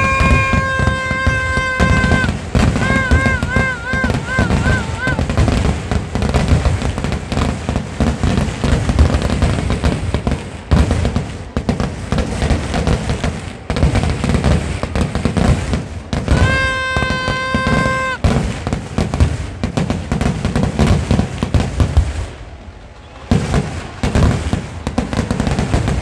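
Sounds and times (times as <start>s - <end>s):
fireworks cracking and booming: 0.0s - 26.0s.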